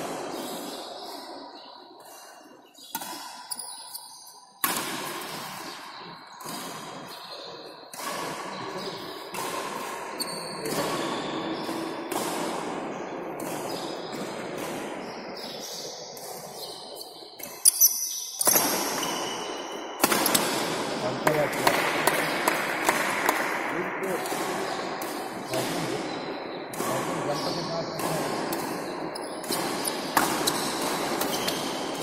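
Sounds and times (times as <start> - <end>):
racket hitting shuttlecock: 2.7 - 15.6, 18.4 - 32.0
shoe squeaks on court floor: 10.2 - 11.7, 16.6 - 19.8, 29.2 - 31.7.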